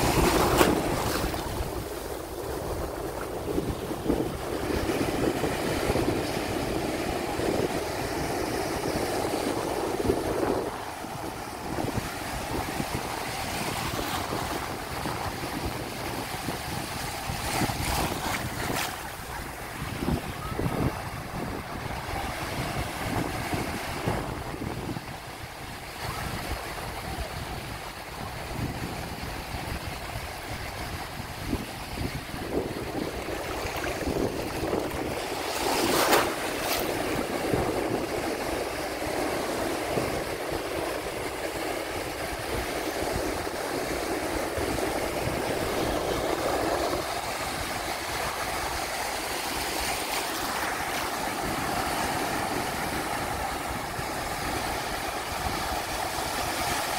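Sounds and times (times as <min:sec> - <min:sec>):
ocean surf breaking: 0:00.0 - 0:56.9
wind buffeting microphone: 0:00.0 - 0:56.9.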